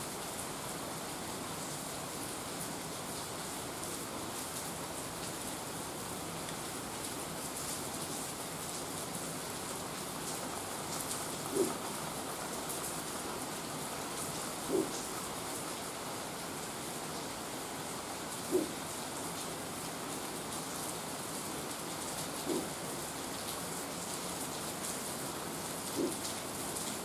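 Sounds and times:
rain on pavement and leaves: 0:00.0 - 0:27.0
pigeon cooing: 0:11.4 - 0:11.9, 0:14.6 - 0:15.1, 0:18.4 - 0:18.9, 0:22.4 - 0:22.8, 0:25.8 - 0:26.3.

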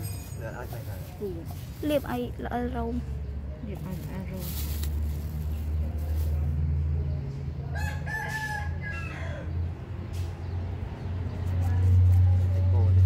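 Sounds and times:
rooster crowing: 0:07.7 - 0:09.6.

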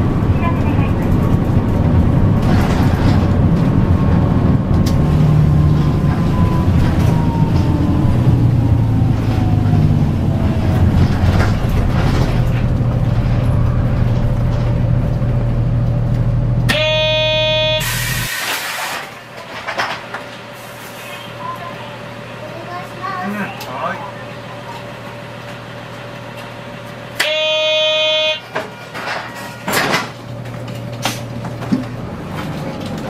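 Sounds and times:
bus diesel engine running: 0:00.0 - 0:33.0
drivetrain whine sliding down: 0:02.4 - 0:16.2.

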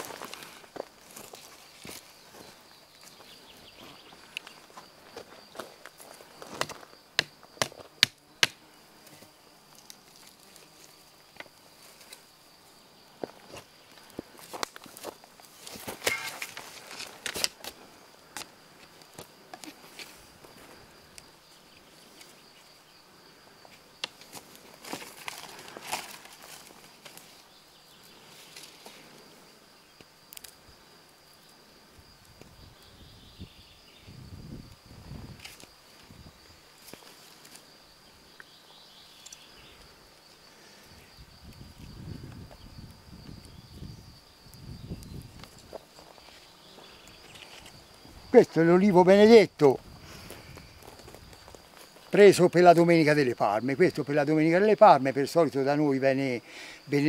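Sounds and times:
high insect buzz: 0:00.0 - 0:57.0
high-pitched insect buzz: 0:24.8 - 0:48.3.

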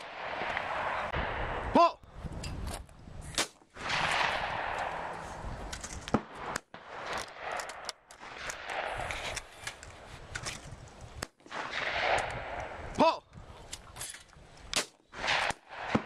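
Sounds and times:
loud shotgun shots: 0:03.4 - 0:05.1, 0:11.5 - 0:12.8, 0:14.8 - 0:16.0
faint distant gunshots: 0:03.8 - 0:05.2, 0:15.2 - 0:16.0.

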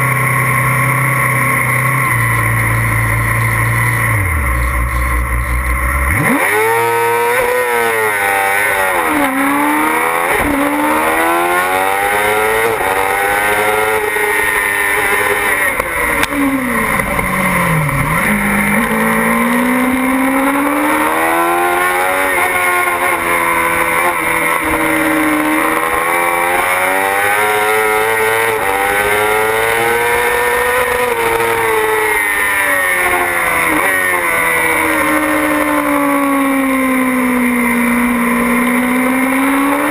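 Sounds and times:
motorbike engine revving: 0:00.0 - 0:39.9.

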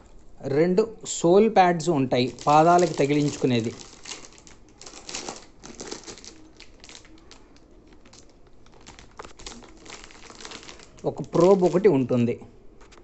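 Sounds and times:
plastic wrapping crinkling: 0:02.1 - 0:12.2.

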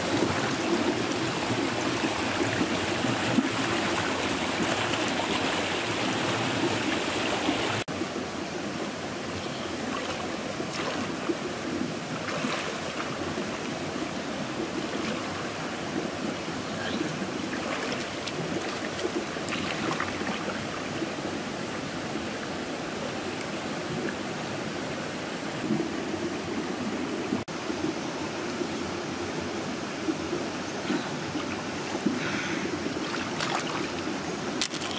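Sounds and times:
river water rushing over rocks: 0:00.0 - 0:27.4
person wading and splashing: 0:09.9 - 0:11.2, 0:12.2 - 0:13.2, 0:17.5 - 0:20.7, 0:33.0 - 0:34.0.

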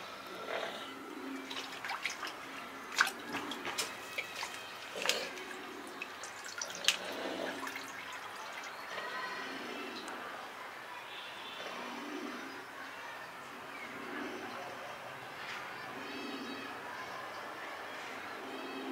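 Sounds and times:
water dripping onto plastic lid: 0:01.4 - 0:08.9.

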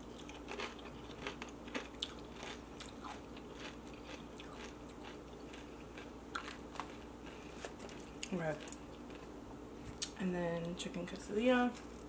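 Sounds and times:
person chewing crunchy chips: 0:00.0 - 0:09.4.

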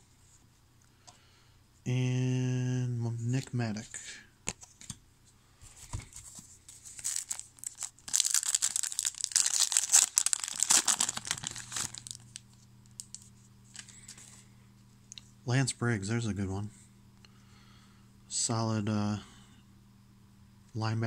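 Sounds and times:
wrapper tearing and crinkling: 0:06.8 - 0:13.9.

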